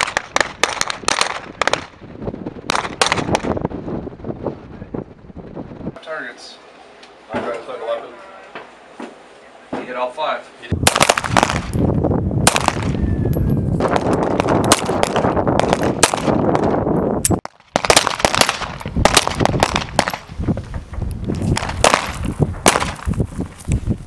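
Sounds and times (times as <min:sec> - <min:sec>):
pistol shots: 0:00.0 - 0:01.9, 0:02.7 - 0:03.6, 0:10.8 - 0:11.8, 0:12.4 - 0:13.0, 0:13.8 - 0:16.8, 0:17.7 - 0:20.3, 0:21.5 - 0:23.1.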